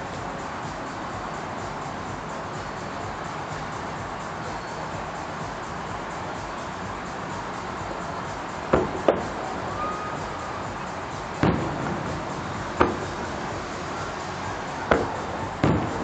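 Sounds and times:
steady background hiss: 0.0 - 16.0
distant fireworks booming: 11.4 - 14.0, 14.9 - 16.0.

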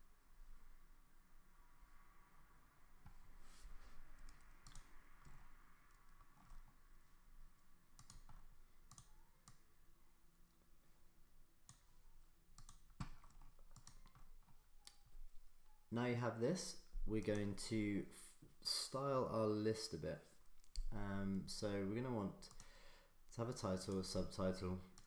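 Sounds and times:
computer mouse and keyboard clicks: 4.2 - 6.8, 8.0 - 9.7, 12.6 - 15.1.

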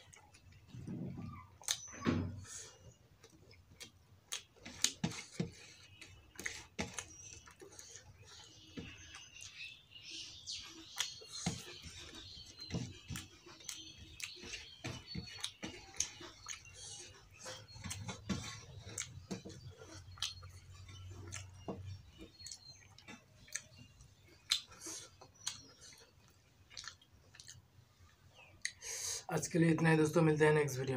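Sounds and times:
chewing with wet lip smacks: 0.0 - 9.7, 10.3 - 28.8
fingers mixing food on steel plate: 3.2 - 27.5.

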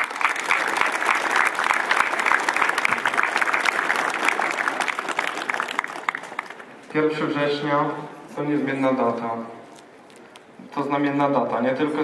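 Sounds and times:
crowd applauding: 0.0 - 6.9.

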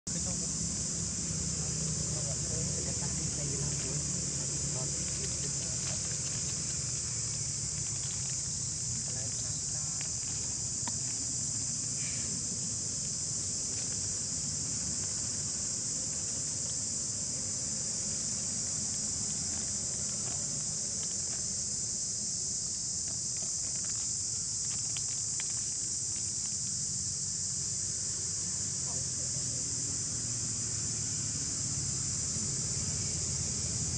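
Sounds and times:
high-pitched insect chorus: 0.1 - 33.9
faint ticks and rustles: 2.2 - 17.4, 18.0 - 21.9, 22.5 - 26.9.

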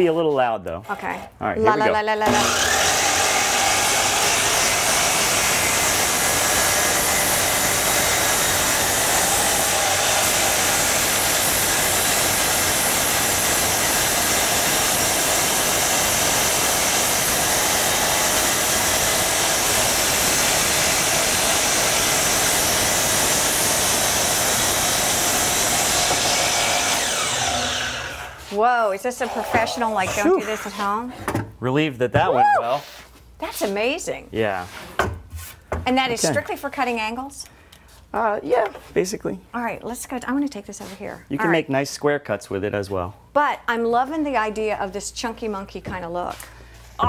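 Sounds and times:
miter saw cutting wood: 1.7 - 30.9, 36.2 - 36.4.

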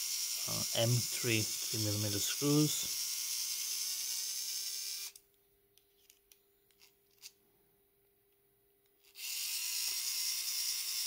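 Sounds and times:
electric screwdriver motor whirring: 0.0 - 5.2, 9.0 - 11.0.

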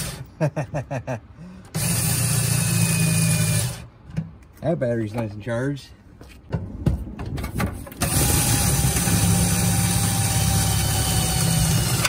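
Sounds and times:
cordless drill boring through metal: 0.0 - 0.2, 1.7 - 3.8, 8.0 - 12.0.

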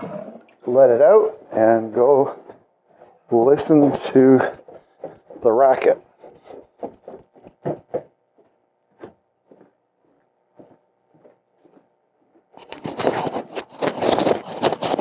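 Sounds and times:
water draining through pipe: 0.0 - 1.0
footsteps on plywood floor: 0.0 - 15.0.

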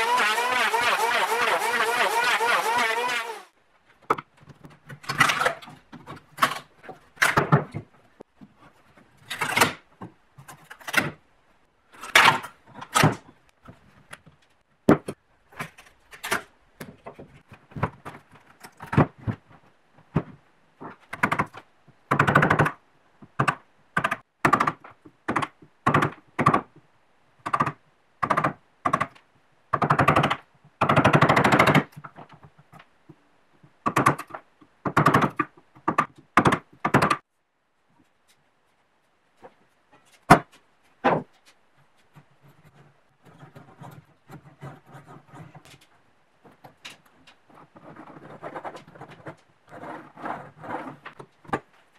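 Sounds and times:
chisel scraping wood: 0.0 - 3.5
wood pieces cracking and knocking: 4.9 - 7.9.

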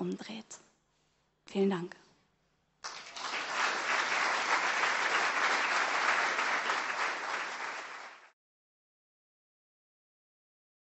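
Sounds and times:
audience applauding: 2.8 - 8.4.

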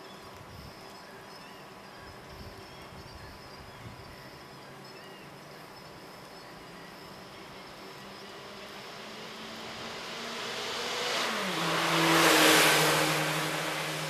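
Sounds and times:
car passing by: 7.9 - 14.0.

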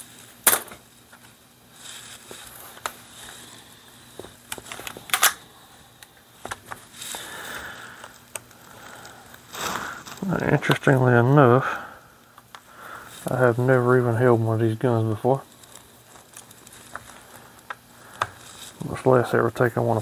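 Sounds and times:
soft rustling: 1.0 - 5.1, 12.7 - 20.0.

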